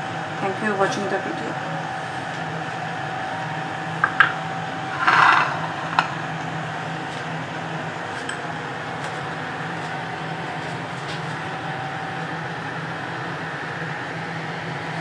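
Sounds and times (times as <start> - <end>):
electrical hum: 0.0 - 15.0
dishes clicking: 4.0 - 4.4
brief scrape: 4.9 - 6.3.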